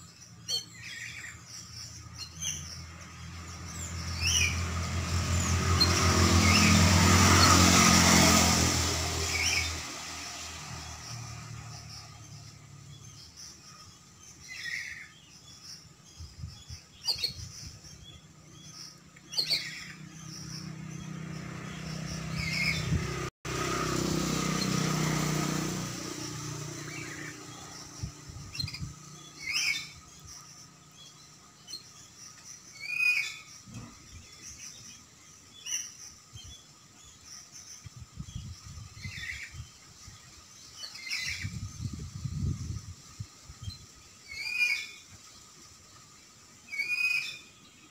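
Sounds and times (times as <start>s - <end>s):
bird chirping: 0.0s - 47.9s
loud rushing noise: 4.6s - 12.0s.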